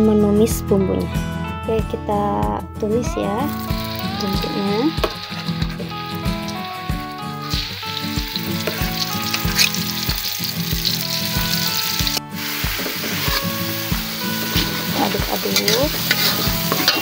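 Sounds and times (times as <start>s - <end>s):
background music with beat: 1.2s - 17.0s
paste sizzling in hot oil: 3.5s - 17.0s.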